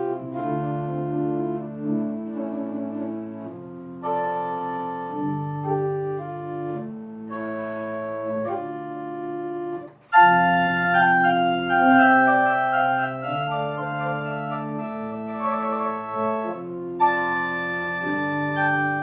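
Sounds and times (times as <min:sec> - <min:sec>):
pipe organ chords: 0:00.0 - 0:19.0.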